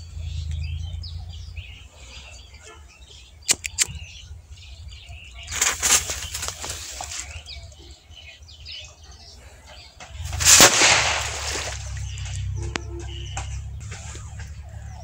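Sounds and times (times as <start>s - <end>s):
birds chirping: 0.0s - 15.0s
firecracker fizzing and cracking: 10.2s - 12.0s.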